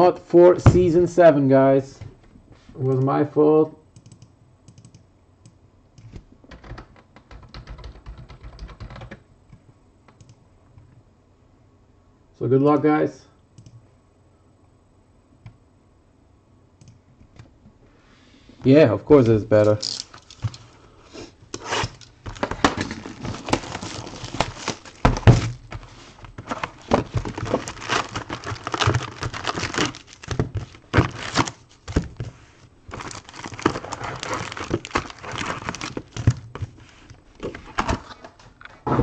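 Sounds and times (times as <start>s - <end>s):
foil packs crinkling and clicking: 21.5s - 38.4s
cardboard box being opened: 21.7s - 32.3s, 32.9s - 36.7s.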